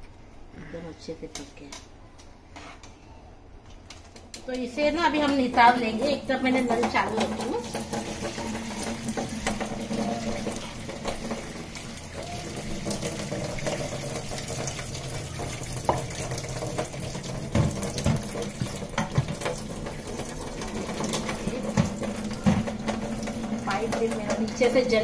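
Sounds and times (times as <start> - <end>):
water splashing into sink: 5.4 - 25.0
tap running into steel sink: 6.6 - 25.0.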